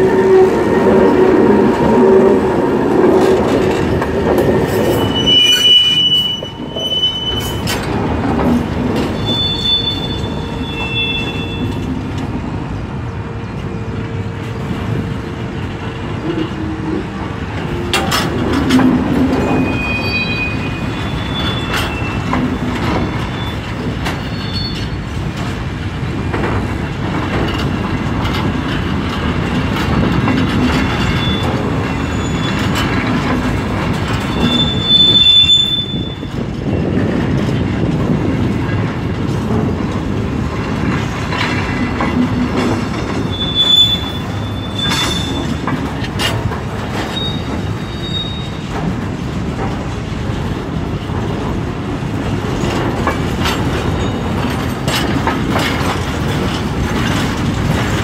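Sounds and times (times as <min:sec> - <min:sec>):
train wheels rumbling and clattering: 0:00.0 - 0:58.0
high wheel squeals: 0:04.8 - 0:07.8, 0:09.1 - 0:11.9, 0:19.4 - 0:25.1, 0:31.0 - 0:33.0, 0:34.1 - 0:36.4, 0:43.1 - 0:45.8, 0:47.1 - 0:48.7.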